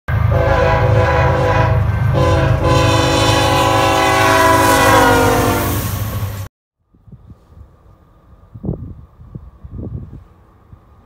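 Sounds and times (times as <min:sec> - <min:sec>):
engine and rail rumble: 0:00.1 - 0:11.0
locomotive air horn: 0:00.2 - 0:06.0.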